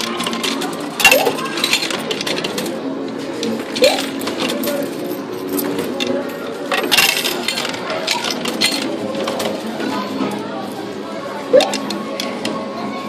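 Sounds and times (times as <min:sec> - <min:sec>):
coins clinking in coin pusher: 0:00.0 - 0:09.7.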